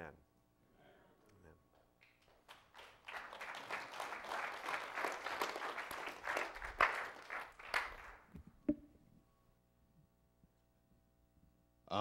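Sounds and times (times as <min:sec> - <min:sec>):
congregation applauding: 0:02.0 - 0:08.3.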